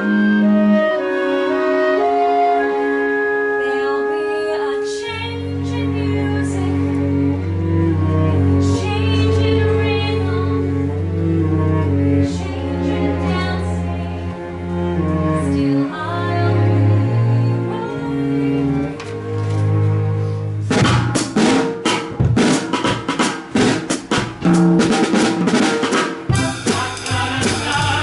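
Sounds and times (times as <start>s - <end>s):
low bass line: 26.3s - 28.0s.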